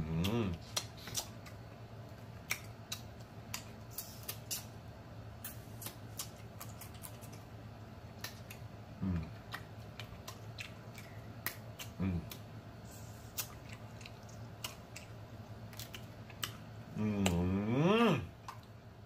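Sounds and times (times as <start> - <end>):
person humming mm: 0.0 - 0.8, 9.0 - 9.4, 11.9 - 12.4, 16.9 - 18.3
lips smacking: 0.1 - 1.6, 2.4 - 4.7, 5.4 - 7.4, 8.2 - 12.5, 13.3 - 17.5.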